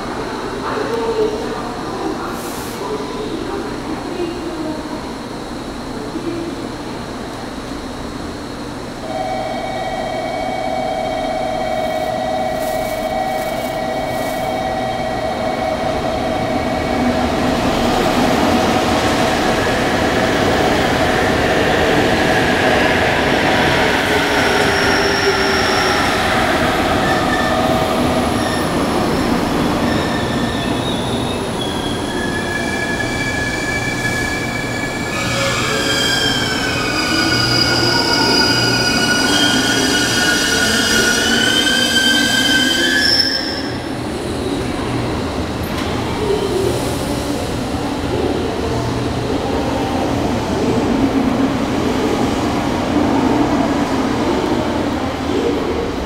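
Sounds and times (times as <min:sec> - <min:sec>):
train wheels squealing: 0:24.1 - 0:26.3, 0:29.8 - 0:43.9.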